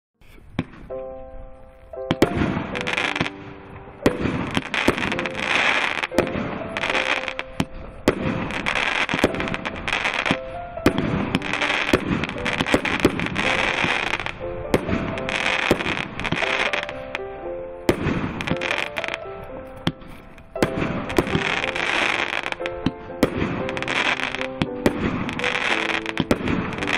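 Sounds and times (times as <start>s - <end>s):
background music: 0.2s - 26.9s
fireworks bangs: 0.5s - 1.0s, 2.1s - 17.2s, 17.8s - 26.9s
crackling of bursting stars: 0.5s - 17.2s, 17.9s - 26.9s.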